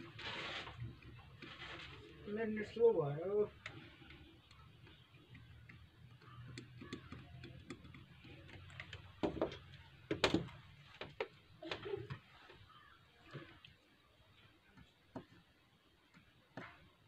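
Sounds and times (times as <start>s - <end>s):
small tools clicking: 3.5s - 10.5s.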